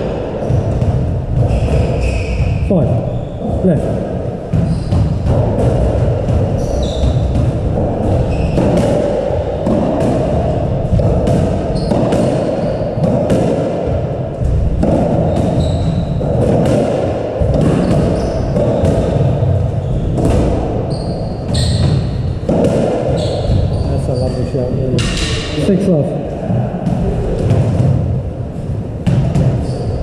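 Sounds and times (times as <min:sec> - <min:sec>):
squash ball hitting rackets: 0:00.0 - 0:24.2, 0:25.0 - 0:25.6, 0:26.8 - 0:30.0
steady rushing noise: 0:00.0 - 0:30.0
shoes squeaking on wooden floor: 0:00.3 - 0:03.8, 0:04.6 - 0:09.7, 0:11.7 - 0:13.0, 0:15.2 - 0:16.3, 0:17.7 - 0:22.4, 0:23.1 - 0:24.6
ball thudding against walls: 0:03.4 - 0:23.8.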